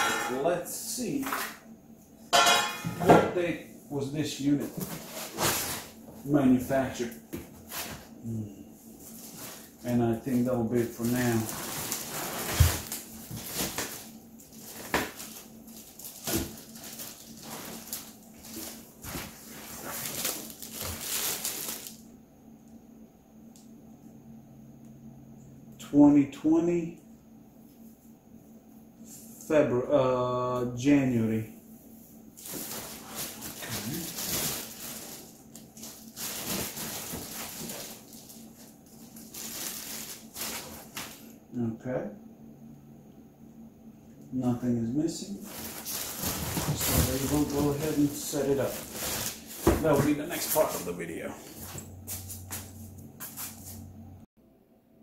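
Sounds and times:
foam packing squeaking: 0:04.8 - 0:06.0, 0:09.0 - 0:22.0, 0:32.4 - 0:41.1, 0:45.4 - 0:51.0
plastic wrapping crinkling: 0:09.0 - 0:22.0, 0:32.4 - 0:41.3, 0:45.4 - 0:51.0.

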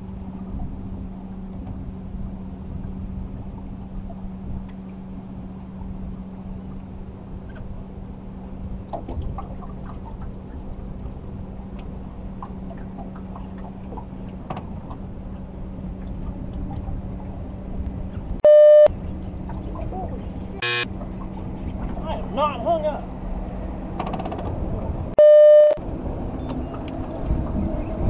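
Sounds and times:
water lapping around boat: 0:00.0 - 0:25.2, 0:25.8 - 0:28.0
electronic buzzer: 0:20.6 - 0:20.9.

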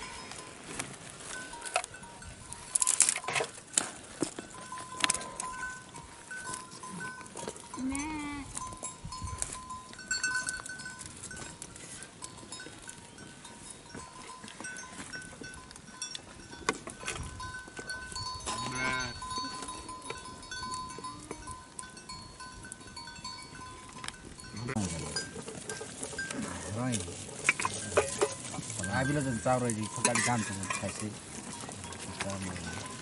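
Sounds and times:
sheep bleating: 0:18.5 - 0:19.2.

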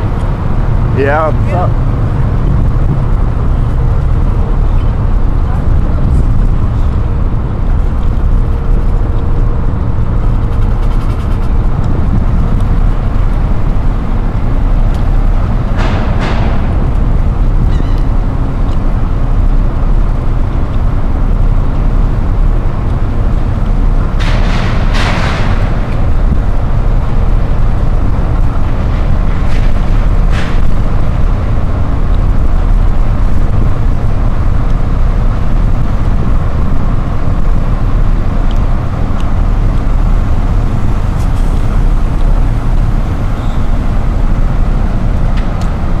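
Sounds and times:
ferry engines rumbling: 0:00.0 - 0:46.0
wind on microphone: 0:00.0 - 0:46.0.

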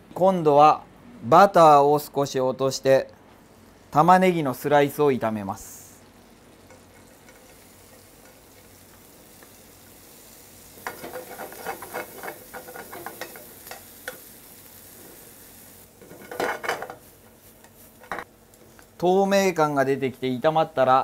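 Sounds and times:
onions sizzling in a frying pan: 0:03.4 - 0:21.0
tongs clicking and scraping pan: 0:06.6 - 0:08.7, 0:10.8 - 0:14.3.

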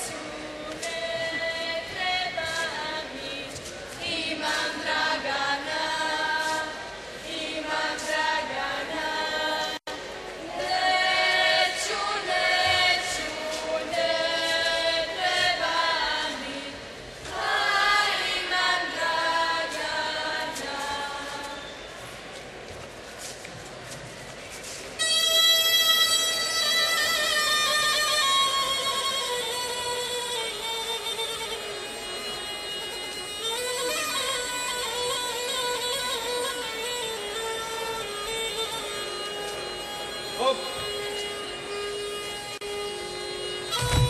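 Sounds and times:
women singing a cappella: 0:00.0 - 0:09.8, 0:10.4 - 0:21.7.

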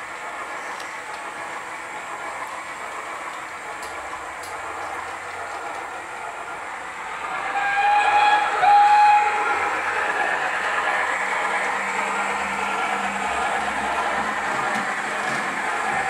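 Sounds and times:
model trains running: 0:00.0 - 0:16.0
steam locomotive whistle: 0:07.2 - 0:10.9.

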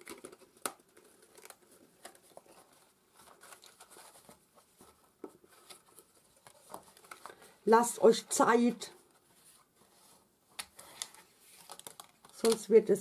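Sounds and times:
paper rustling and tapping: 0:10.6 - 0:12.8.

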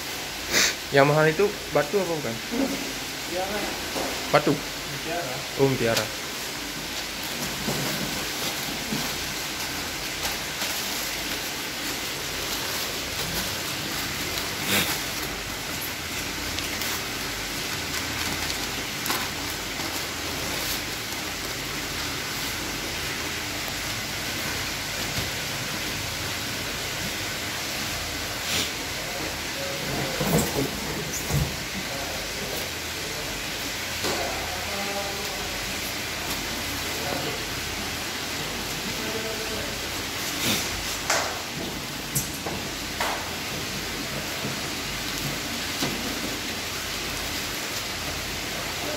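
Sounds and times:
steady hiss: 0:00.0 - 0:48.9
newspaper crackling: 0:05.8 - 0:25.4.

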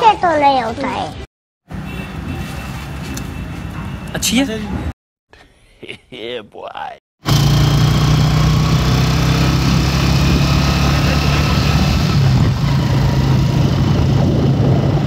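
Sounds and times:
motorcycle engine running: 0:07.2 - 0:15.0
wind noise on microphone: 0:11.7 - 0:15.0.

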